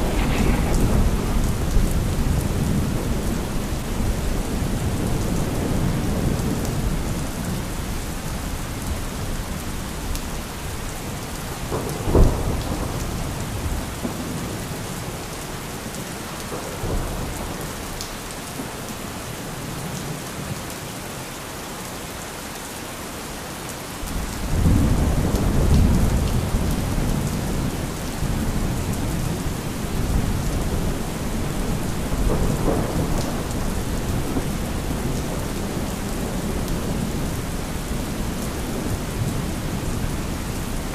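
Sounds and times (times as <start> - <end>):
sharp thunder crack: 0.0 - 3.4
low rumble of thunder: 0.0 - 8.0, 11.6 - 14.8, 24.1 - 40.9
steady rain: 0.0 - 40.9.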